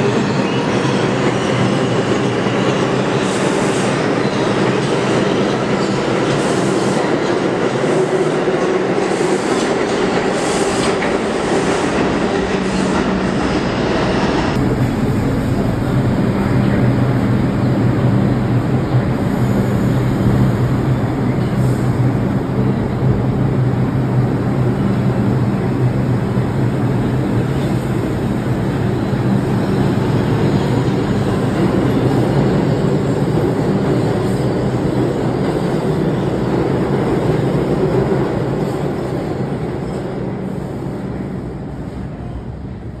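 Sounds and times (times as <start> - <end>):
subway train rumbling: 0.0 - 43.0
low hum: 14.6 - 19.3.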